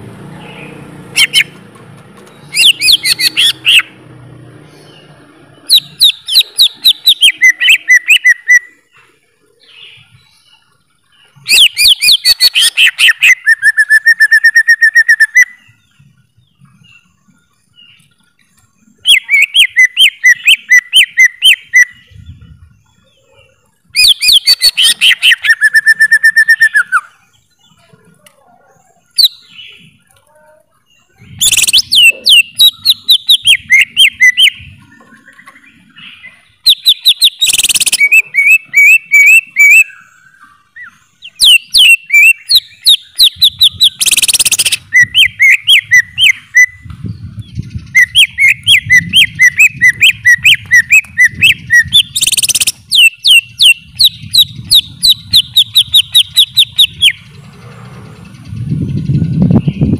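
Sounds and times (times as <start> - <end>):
bird whistling rapid notes: 1.2 - 1.5, 2.5 - 3.9, 5.7 - 8.8, 11.4 - 15.7, 24.0 - 27.2, 31.3 - 34.7, 36.6 - 40.1, 40.8 - 57.2
harsh rasping bird call: 2.5 - 4.1, 30.8 - 34.6.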